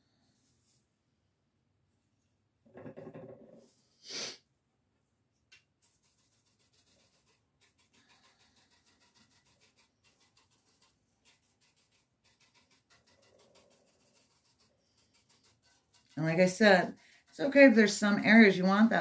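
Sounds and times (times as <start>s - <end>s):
sharp puff of breath: 4.0s - 4.4s
soft rapid brushing strokes: 5.8s - 19.0s.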